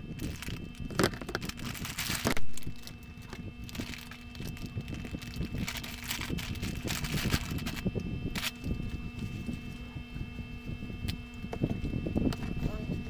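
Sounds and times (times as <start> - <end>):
faint steady hum: 0.0 - 13.0
plastic bag crinkling: 0.1 - 9.3.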